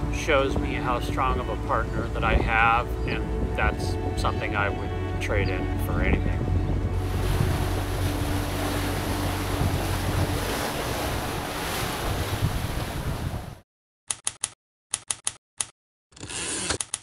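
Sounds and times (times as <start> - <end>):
wind buffeting microphone: 0.0 - 13.6
waves rushing past hull: 6.1 - 13.6.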